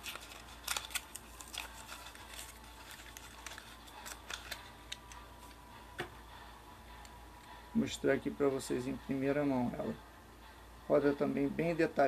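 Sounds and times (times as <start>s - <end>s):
plastic crackling: 0.0s - 5.6s.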